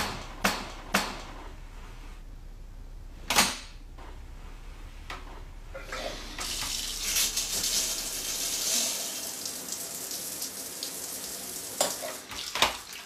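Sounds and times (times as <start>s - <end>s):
shower water spraying: 6.2s - 13.0s.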